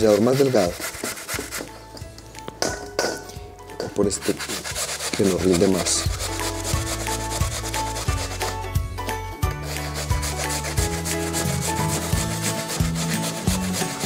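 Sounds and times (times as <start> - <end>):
potato grating rasps: 0.0 - 1.7, 4.1 - 8.7, 9.6 - 14.0
background music with bass: 0.0 - 14.0.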